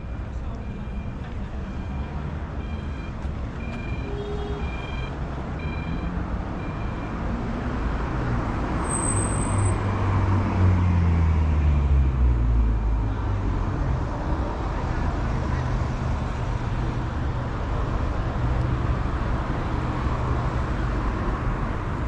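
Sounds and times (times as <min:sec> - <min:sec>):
crossing signal beeping: 0:00.1 - 0:07.3.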